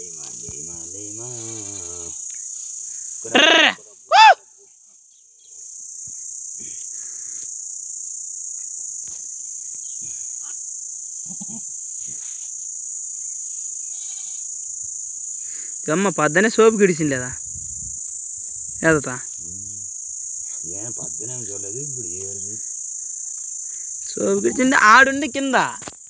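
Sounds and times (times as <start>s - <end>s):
high-pitched insect buzz: 0.0s - 26.0s
short loud cries: 3.3s - 4.4s.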